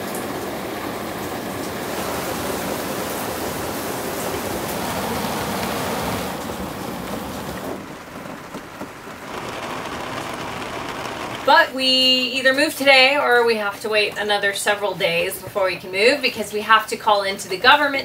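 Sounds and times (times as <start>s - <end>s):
rain on boat deck: 0.0s - 18.0s.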